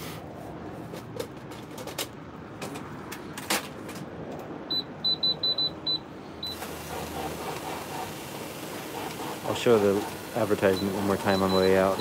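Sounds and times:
low shop hum: 0.0 - 12.0
cash register keypad beeps: 4.7 - 7.4, 10.4 - 12.0.

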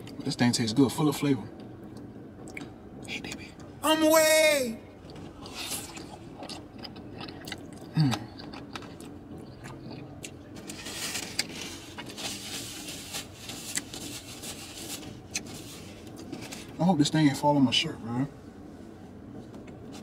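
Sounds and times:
person chewing: 2.0 - 3.4, 5.0 - 12.1, 13.6 - 14.2, 14.8 - 16.4
person humming mmm: 7.8 - 8.5.

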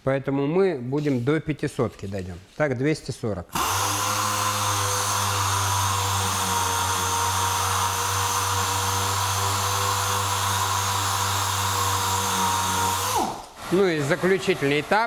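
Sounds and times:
orbital sander running: 3.6 - 15.0.

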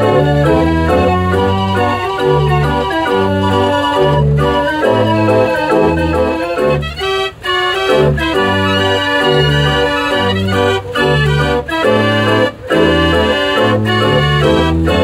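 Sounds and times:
street organ playing a tune: 0.0 - 15.0.

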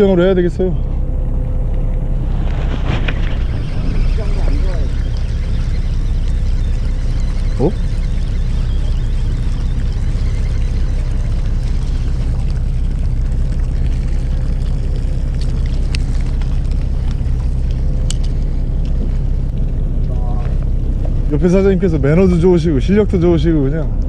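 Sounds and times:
boat engine droning: 0.0 - 24.0
short rising squeak: 2.2 - 12.8.

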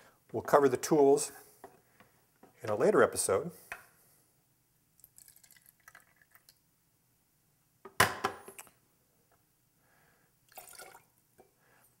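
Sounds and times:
juice trickling and dripping: 5.0 - 6.6, 10.5 - 11.1.

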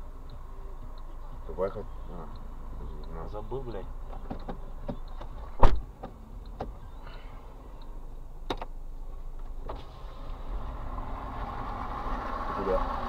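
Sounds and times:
car engine and tyre noise: 0.0 - 13.0
clicks inside car cabin: 4.0 - 7.0, 8.4 - 9.7.

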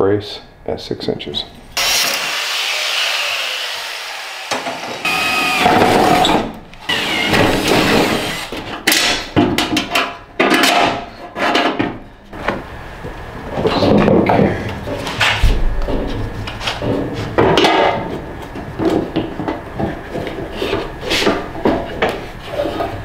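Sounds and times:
power tool cutting steel: 1.8 - 6.3
metal clanks and rattles: 8.6 - 12.0.

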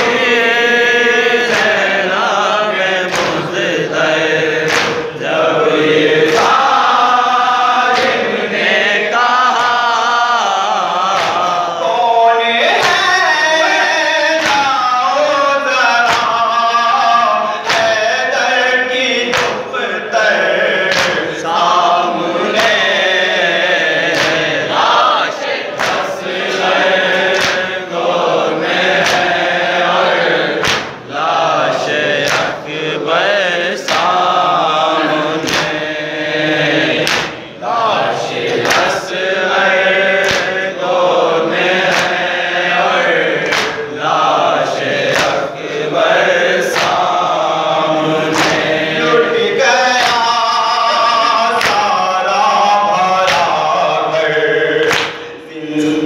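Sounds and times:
men chanting in chorus: 0.0 - 56.0
hands slapping chests: 1.4 - 1.9, 3.0 - 3.6, 4.6 - 5.2, 6.2 - 6.8, 7.9 - 8.3, 11.1 - 11.6, 14.4 - 14.8, 16.0 - 16.4, 17.6 - 18.0, 19.3 - 19.7, 20.9 - 21.7, 22.4 - 23.0, 24.0 - 27.8, 28.7 - 29.5, 30.5 - 31.1, 32.2 - 32.6, 33.8 - 34.3, 35.3 - 35.9, 36.9 - 37.5, 38.5 - 39.0, 40.2 - 40.6, 41.7 - 42.4, 43.4 - 43.9, 44.8 - 45.5, 46.7 - 47.2, 48.2 - 48.8, 50.0 - 50.3, 51.6 - 51.9, 53.2 - 53.6, 54.8 - 55.9
man singing a lament into a microphone: 8.8 - 24.6, 43.8 - 56.0.

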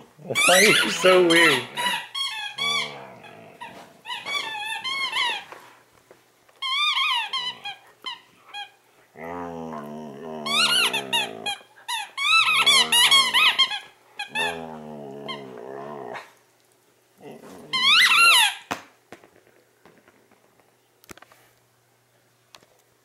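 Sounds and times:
dog growling: 0.2 - 4.9, 7.2 - 16.4, 17.2 - 18.4
squeaky toy squeaking: 0.4 - 3.0, 4.1 - 5.4, 6.6 - 8.7, 10.6 - 11.3, 11.9 - 14.5, 17.8 - 18.6.

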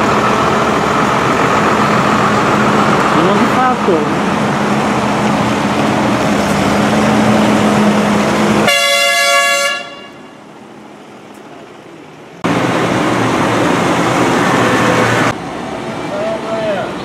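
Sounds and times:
tractor diesel engines droning: 0.0 - 17.0
vehicle horn: 8.6 - 10.4.

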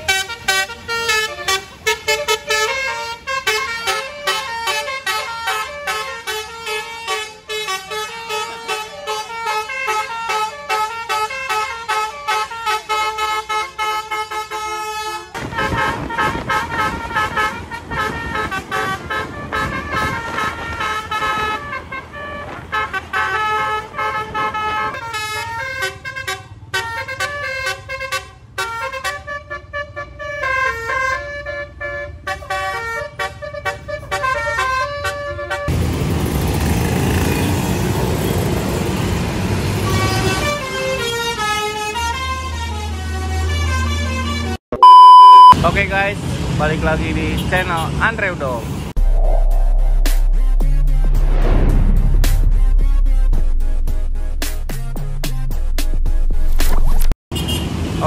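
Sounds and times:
musical bus air horn melody: 0.0 - 35.7, 39.8 - 45.5
loud rushing noise: 48.7 - 56.5.

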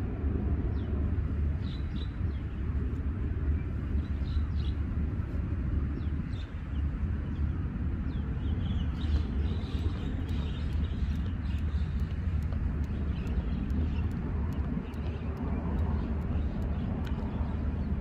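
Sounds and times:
wind rumble on microphone: 0.0 - 18.0
jump rope ticking on rock: 9.6 - 18.0.

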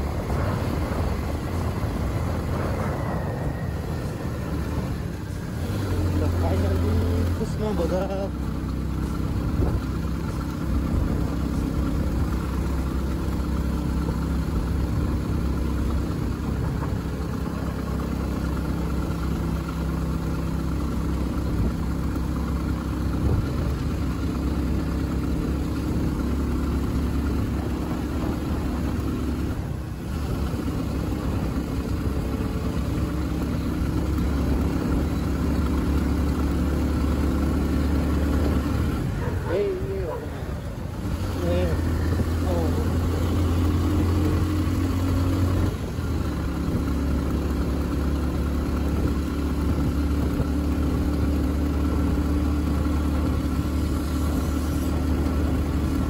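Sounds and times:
vehicle engine and road noise: 0.0 - 56.0.

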